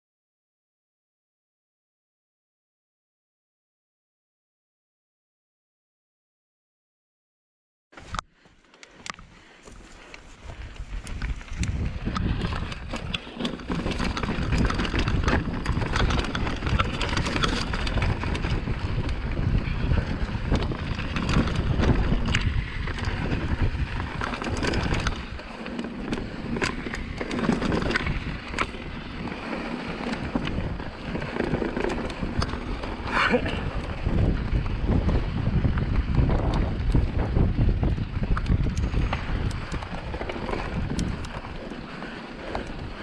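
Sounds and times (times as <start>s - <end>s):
bike clattering and rattling: 8.0s - 43.0s
wind buffeting microphone: 9.0s - 43.0s
tyres grinding over rock and gravel: 11.2s - 36.9s, 37.8s - 43.0s.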